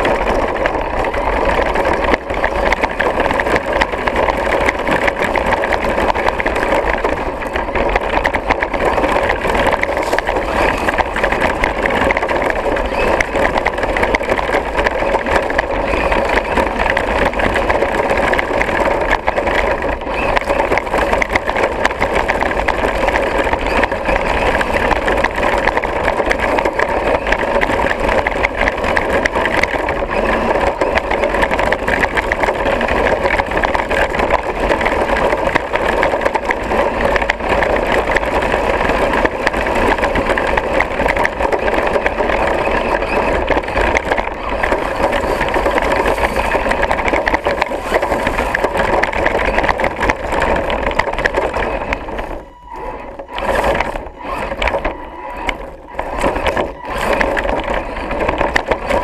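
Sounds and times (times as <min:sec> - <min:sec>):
chassis knocks and rattles: 0:00.0 - 0:59.0
electric motor and gears whining: 0:00.0 - 0:59.0.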